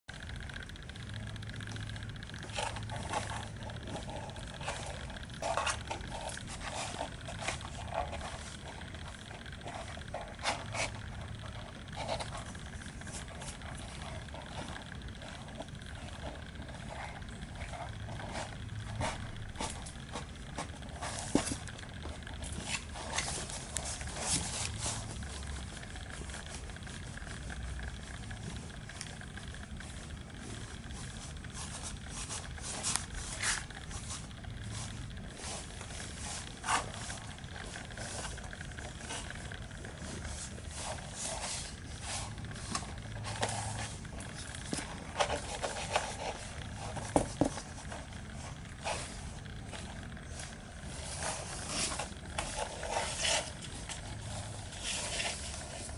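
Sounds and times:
cat purring: 1.1s - 55.9s
cardboard box scraping: 50.9s - 55.9s.

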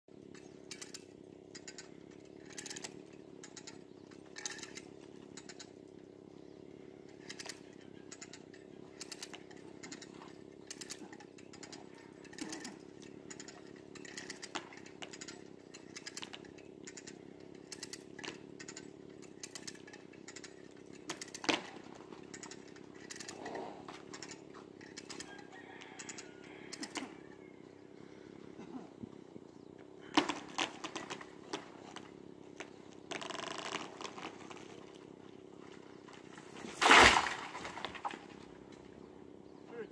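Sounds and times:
chainsaw running: 0.2s - 27.0s.

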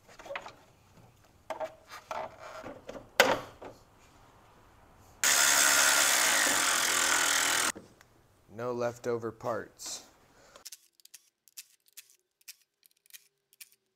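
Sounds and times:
cordless electric ratchet running: 5.2s - 7.7s.

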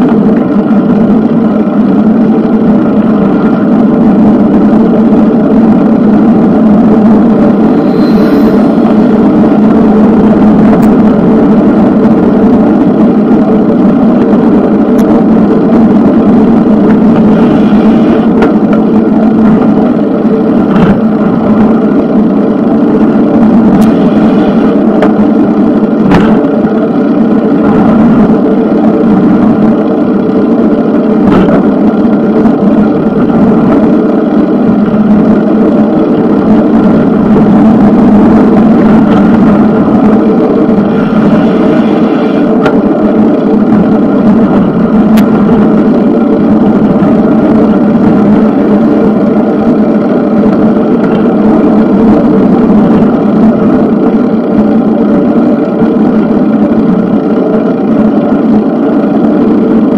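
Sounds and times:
bicycle rolling noise: 0.0s - 59.9s.

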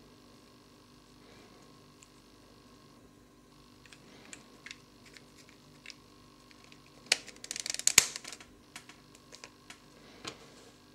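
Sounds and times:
plastic piece snapping: 3.9s - 9.8s
plastic puzzle pieces clicking: 3.9s - 9.8s.

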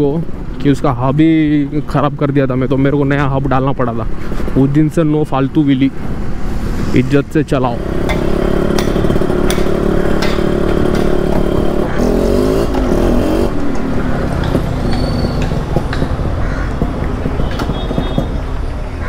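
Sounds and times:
two-stroke motorcycle engine running: 7.8s - 18.3s.

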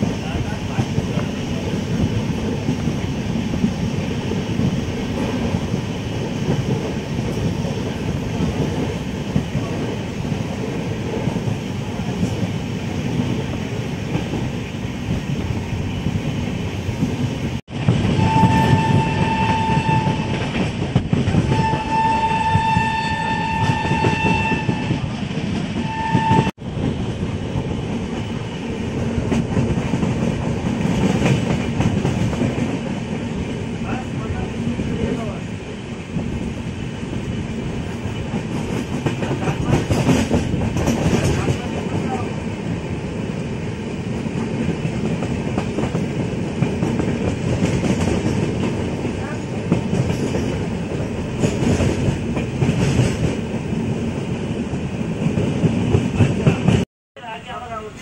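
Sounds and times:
train wheels rumbling: 0.0s - 58.0s
train horn blasts: 18.2s - 20.4s, 21.5s - 25.0s, 25.8s - 26.5s.

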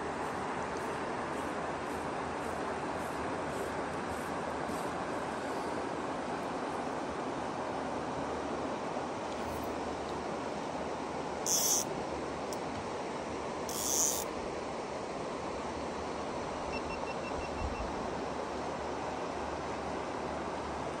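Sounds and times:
river water rushing: 0.0s - 12.4s
high-pitched buzzes: 11.4s - 11.9s, 13.7s - 14.3s.

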